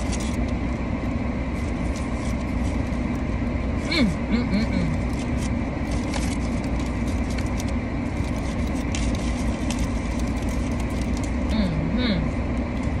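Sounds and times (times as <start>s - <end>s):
foil and paper bag crinkling: 0.0s - 0.7s, 1.5s - 3.3s, 4.9s - 11.5s
low hum in car cabin: 0.0s - 13.0s.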